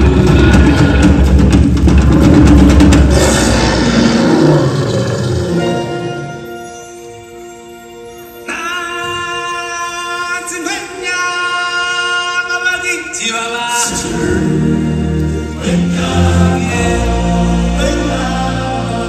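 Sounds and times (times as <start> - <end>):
deep drums and bass: 0.0 - 4.4
choir holding sustained notes: 3.1 - 9.8, 13.9 - 19.0.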